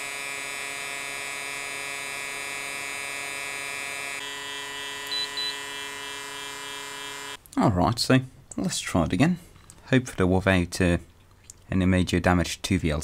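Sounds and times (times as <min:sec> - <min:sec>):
computer cooling fan: 0:00.0 - 0:07.4
short high beep: 0:05.1 - 0:05.6.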